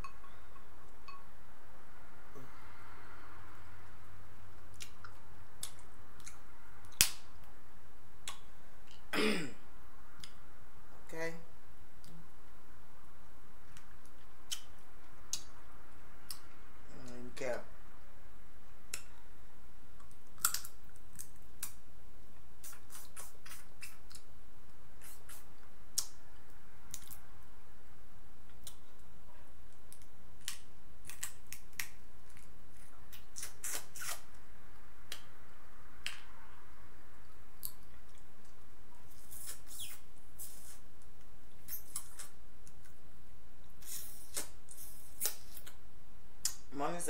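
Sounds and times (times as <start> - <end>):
lip smacks and mouth clicks: 4.7 - 7.2, 8.2 - 9.0, 13.7 - 15.6, 22.6 - 24.3, 25.0 - 26.2, 33.1 - 34.3, 37.6 - 43.0, 43.7 - 45.8, 46.4 - 46.7.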